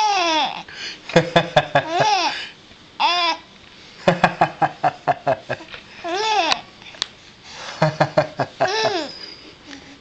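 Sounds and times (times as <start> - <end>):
baby cooing and babbling: 0.0 - 0.7, 3.0 - 3.5, 6.0 - 6.7.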